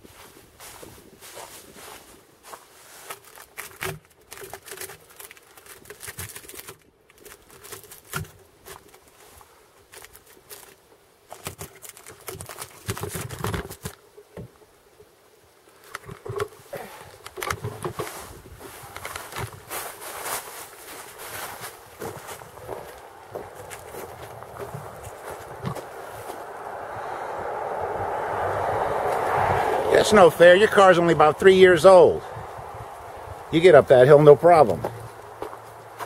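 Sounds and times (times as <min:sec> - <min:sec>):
camera handling knocks and rubbing: 0:17.2 - 0:18.2
taps and scuffs: 0:17.7 - 0:26.4, 0:34.6 - 0:36.0.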